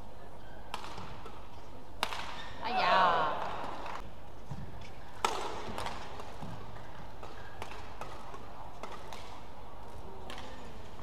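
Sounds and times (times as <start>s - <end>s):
rackets striking shuttlecock: 0.7s - 1.4s, 2.0s - 2.5s, 5.2s - 9.5s.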